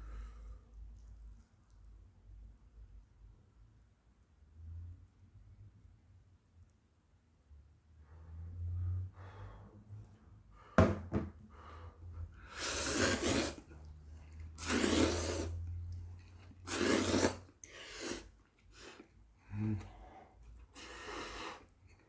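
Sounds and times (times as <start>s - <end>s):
slurping noodles: 12.4s - 19.2s.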